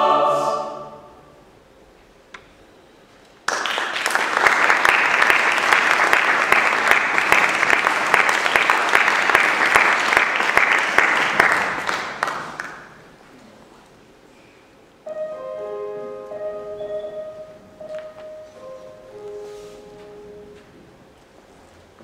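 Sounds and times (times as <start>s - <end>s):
audience applauding: 3.5s - 13.1s.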